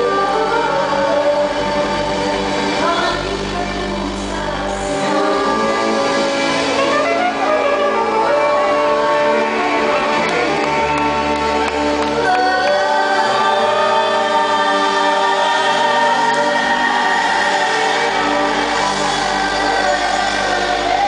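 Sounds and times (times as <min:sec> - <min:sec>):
live band music: 0:00.0 - 0:21.0
woman singing into microphone: 0:02.7 - 0:10.2, 0:12.1 - 0:21.0.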